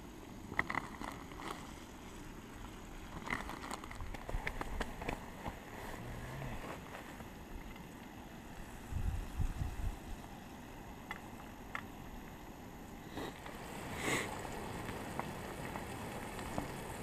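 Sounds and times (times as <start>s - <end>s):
fish sizzling in fat: 13.1s - 17.0s.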